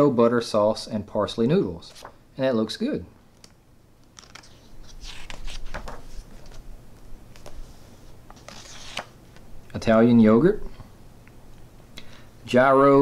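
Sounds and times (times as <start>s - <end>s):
paper page rustling: 1.8s - 2.2s, 4.2s - 9.5s.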